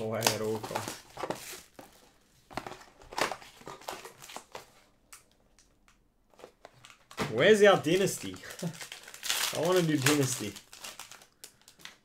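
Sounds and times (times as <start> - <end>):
card box wrapper ripping: 7.9 - 11.2.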